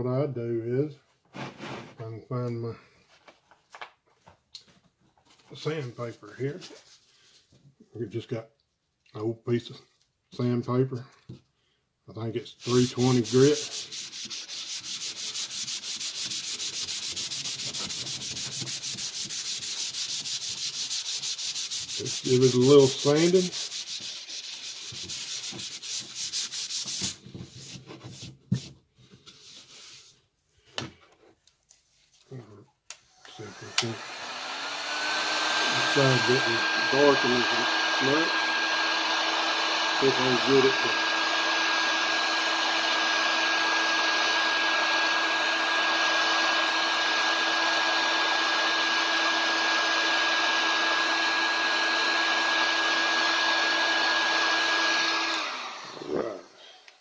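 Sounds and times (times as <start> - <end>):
heat gun blowing air: 12.6 - 27.2, 33.2 - 57.0
sandpaper sanding wood: 12.6 - 28.8, 35.2 - 42.0
hand brushing board: 12.6 - 30.2.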